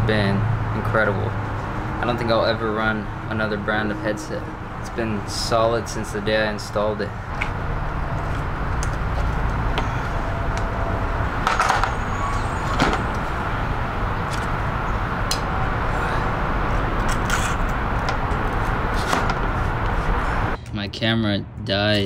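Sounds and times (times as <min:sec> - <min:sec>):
low motor hum: 0:07.1 - 0:20.6.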